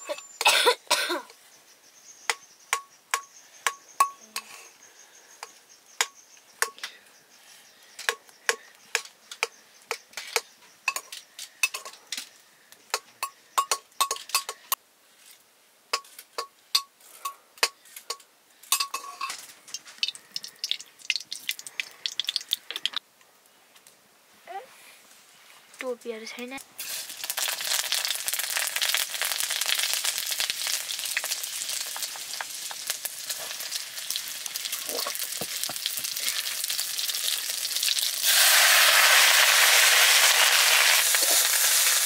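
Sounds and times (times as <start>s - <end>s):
steel ladle clinking on metal pot: 18.1s - 19.4s.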